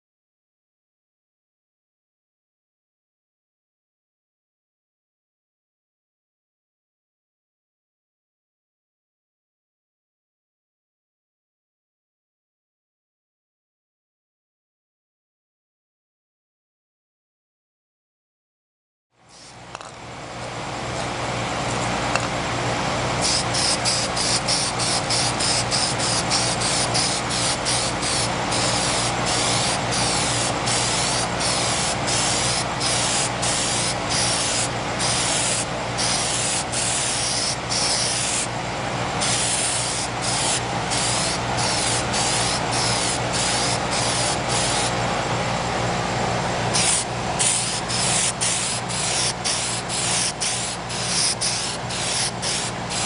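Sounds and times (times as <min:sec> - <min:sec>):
aerosol spray can hissing: 0:19.3 - 0:19.6, 0:23.2 - 0:38.5, 0:39.2 - 0:44.9, 0:46.8 - 0:53.0.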